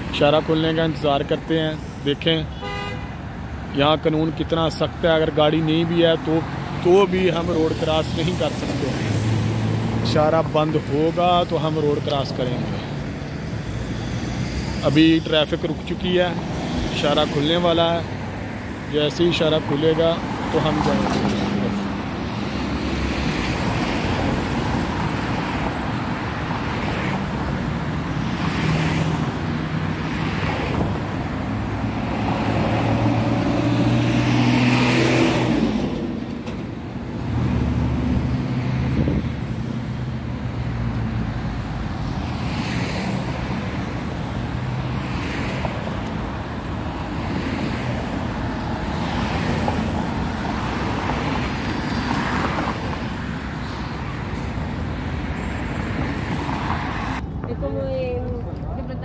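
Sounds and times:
road traffic passing: 0.0s - 59.0s
vehicle passing loudly: 27.9s - 36.3s.

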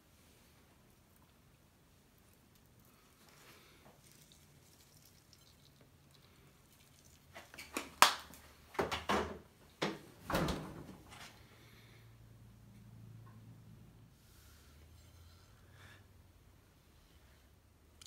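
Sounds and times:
faint low hum: 10.2s - 18.0s.

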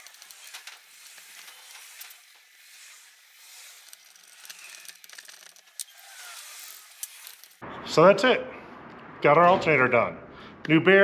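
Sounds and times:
screwdriver clicking on metal parts: 0.0s - 2.6s, 3.4s - 7.6s.

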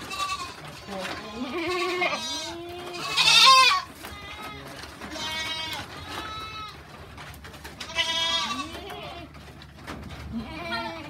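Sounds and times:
goats bleating: 0.0s - 7.0s, 7.6s - 9.6s, 10.2s - 11.0s.

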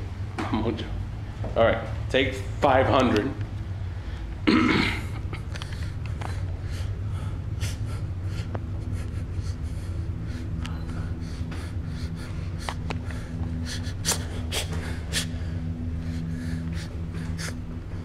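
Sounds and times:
low steady hum: 0.0s - 18.0s
close-up breathing and sniffing: 5.5s - 18.0s.

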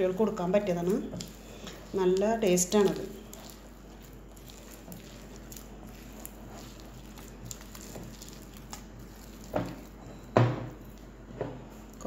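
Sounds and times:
dough squelching and patting: 0.0s - 12.0s
dough thump: 7.8s - 11.6s.

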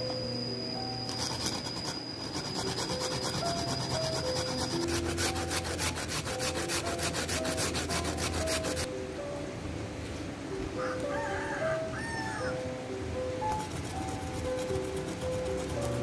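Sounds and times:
background music: 0.0s - 16.0s
hand grating on a grater: 1.1s - 8.9s, 13.5s - 16.0s.

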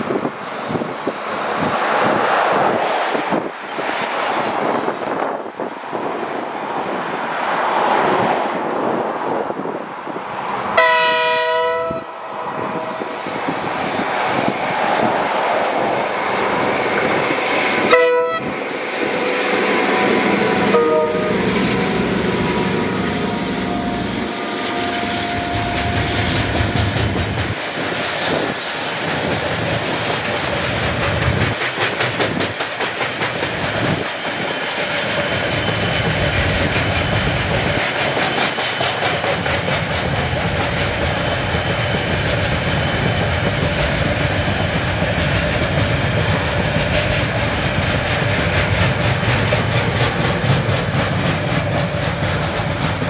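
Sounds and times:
train horn: 10.7s - 13.2s, 17.7s - 18.6s, 19.2s - 26.4s
train wheels clattering: 24.0s - 53.0s.

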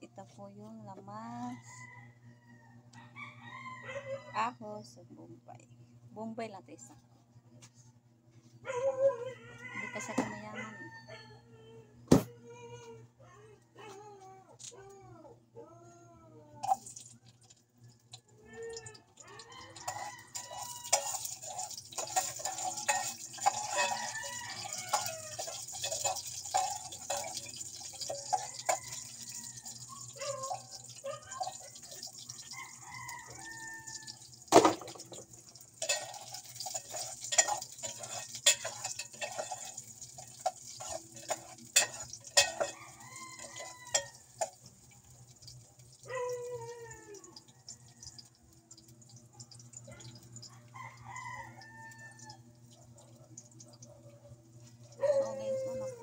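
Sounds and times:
rooster crowing: 1.2s - 4.8s, 8.7s - 12.0s, 18.2s - 34.7s, 40.8s - 44.3s, 49.9s - 52.5s, 54.9s - 56.0s.

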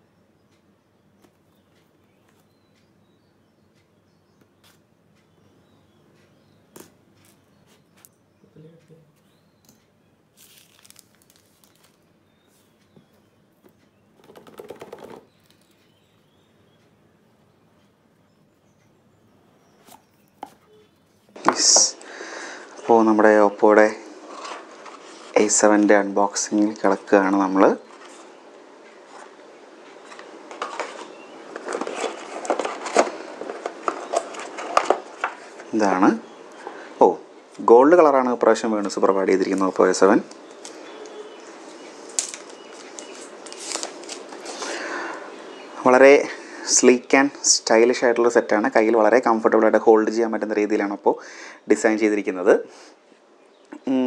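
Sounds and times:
plastic shrink wrap crinkling: 10.3s - 12.0s, 42.1s - 44.6s.

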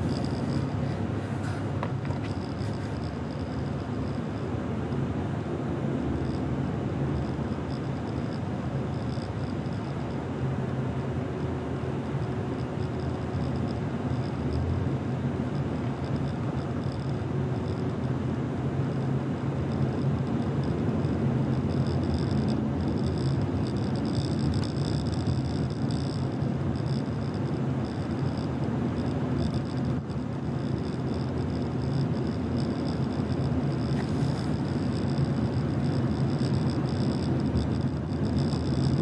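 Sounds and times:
low engine hum: 0.0s - 39.0s
road and tyre noise: 0.0s - 39.0s.

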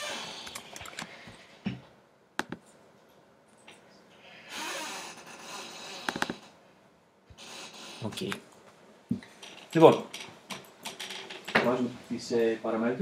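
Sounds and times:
keyboard and mouse clicks: 0.4s - 1.1s, 2.4s - 2.8s.

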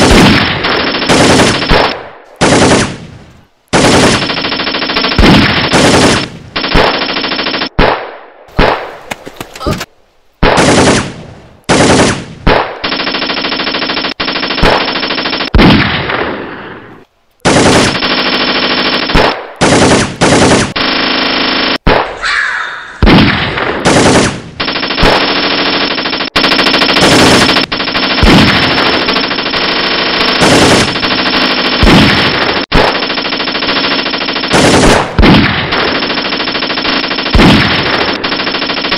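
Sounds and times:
machine-gun bursts: 0.0s - 3.0s, 3.7s - 7.7s, 10.6s - 11.1s, 11.7s - 15.6s, 17.4s - 21.8s, 23.8s - 38.9s.

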